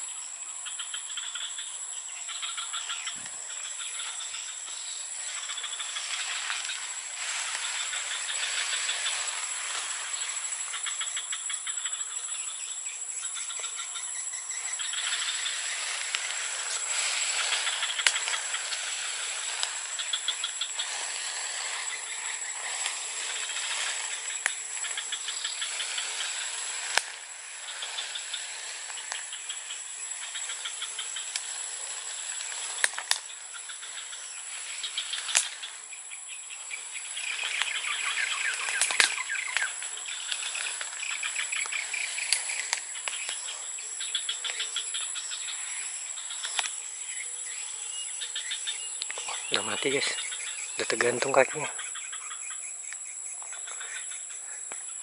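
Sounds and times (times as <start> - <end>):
insect chorus buzzing: 0.0 - 55.0
rapidly pulsing insect chirps: 0.0 - 55.0
sharp clicks: 35.2 - 35.6.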